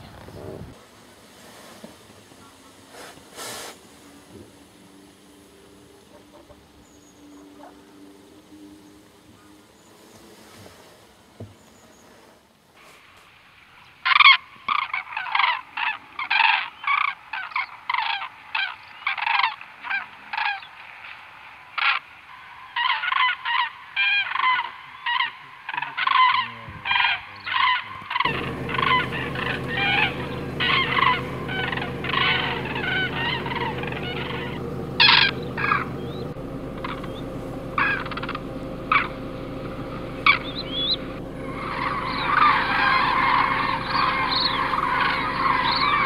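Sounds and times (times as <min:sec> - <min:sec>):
cranes trumpeting calls: 0:02.3 - 0:10.9, 0:14.0 - 0:46.0
steady low hum: 0:28.3 - 0:46.0.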